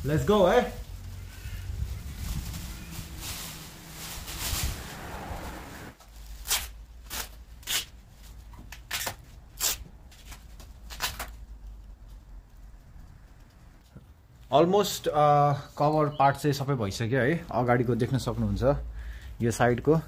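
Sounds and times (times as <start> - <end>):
plastic sheet rustling: 0.0 - 12.8.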